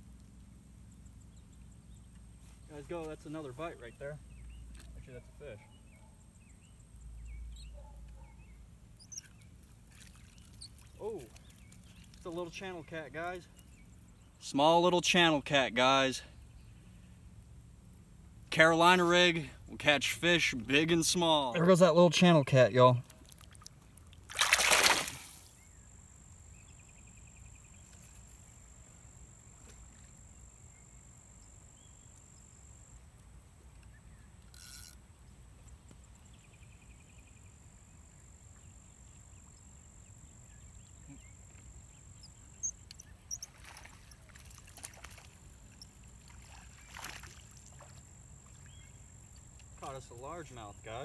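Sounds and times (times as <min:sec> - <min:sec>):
fish splashing into water: 0:23.1 - 0:25.5, 0:43.5 - 0:48.1.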